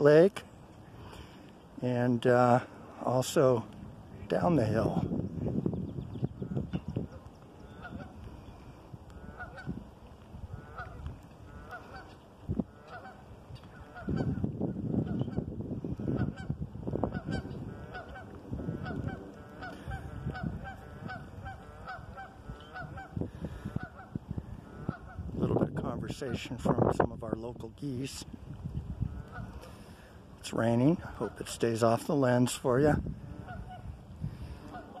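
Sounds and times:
geese honking: 0:06.4 - 0:25.3, 0:29.0 - 0:35.0.

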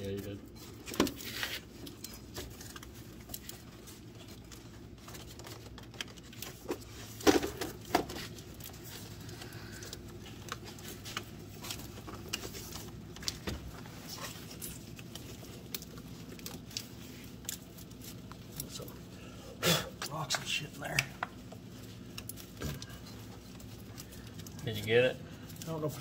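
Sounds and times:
plastic and wiring clicks and rattles: 0:00.6 - 0:18.9.

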